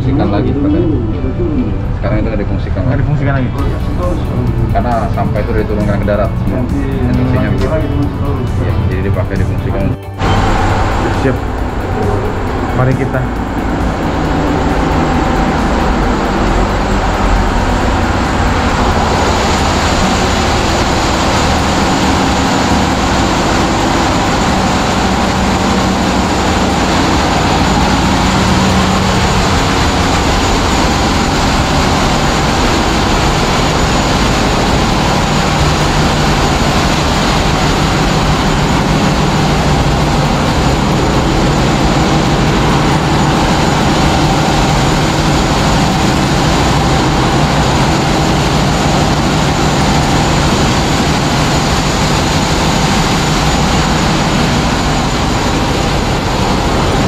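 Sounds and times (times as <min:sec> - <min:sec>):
low hum: 0:00.0 - 0:57.0
ship engine room machinery drone: 0:00.0 - 0:57.0.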